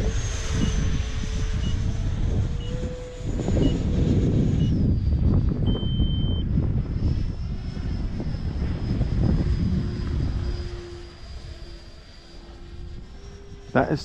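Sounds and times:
electric ducted fan whining: 0.0 - 14.0
wind rumble on microphone: 0.0 - 14.0
short electronic beep: 5.7 - 6.4.

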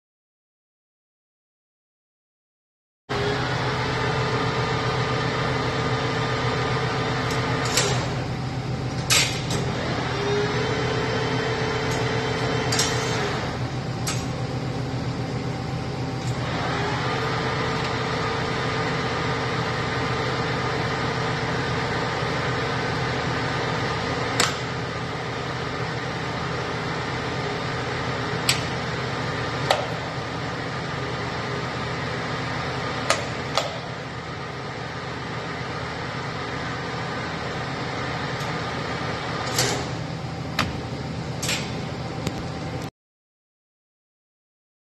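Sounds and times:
lathe running: 9.6 - 39.5.

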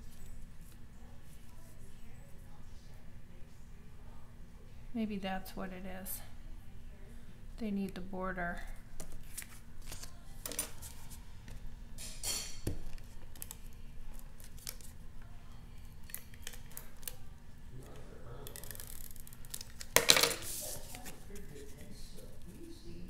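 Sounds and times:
paper brushing: 20.4 - 22.8.

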